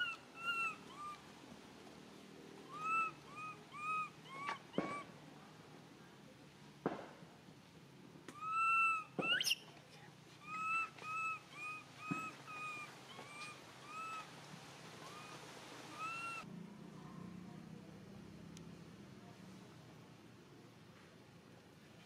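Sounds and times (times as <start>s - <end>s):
baby monkey squeal: 2.7s - 5.0s, 8.4s - 9.6s, 10.4s - 14.2s.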